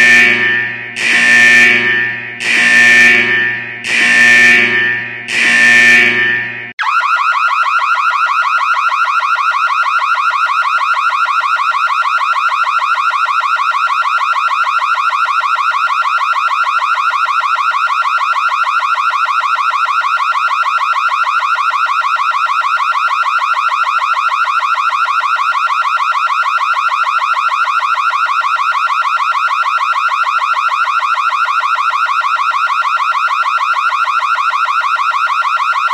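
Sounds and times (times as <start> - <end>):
high-pitched pulsing alarm tone: 0.0 - 9.1, 28.6 - 35.9.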